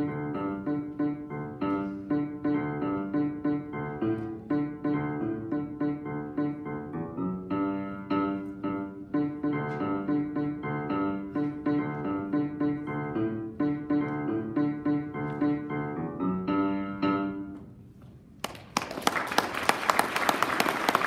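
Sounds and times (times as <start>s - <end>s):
grand piano playing: 0.0s - 17.9s
audience applause: 18.4s - 21.0s.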